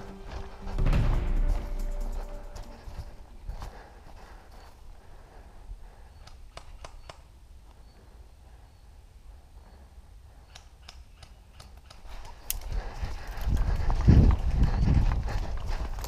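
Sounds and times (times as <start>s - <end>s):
low wind rumble: 0.0s - 6.6s, 12.1s - 16.0s
light clicks and ticks: 10.5s - 13.7s.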